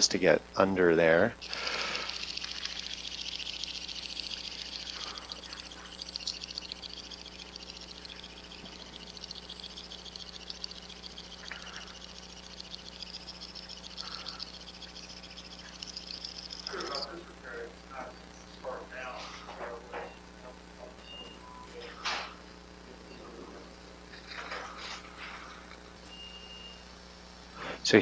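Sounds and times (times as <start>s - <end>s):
suction crackling hiss: 1.4s - 18.7s.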